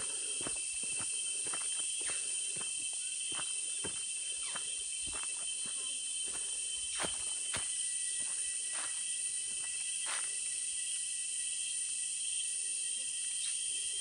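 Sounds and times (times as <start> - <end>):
insects droning: 0.0 - 14.0
footsteps crunching on leaves: 3.3 - 10.4.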